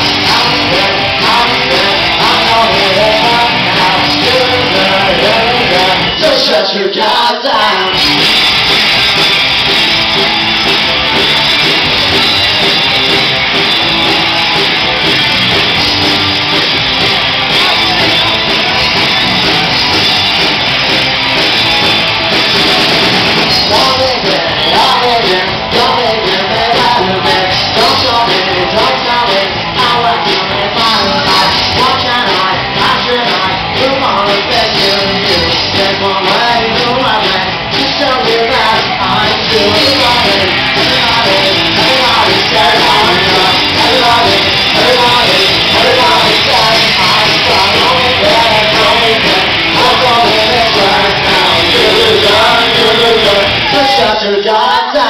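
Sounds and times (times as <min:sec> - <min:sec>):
live rock band playing: 0:00.0 - 0:06.6, 0:07.6 - 0:55.0
person singing: 0:00.0 - 0:08.0, 0:23.4 - 0:55.0.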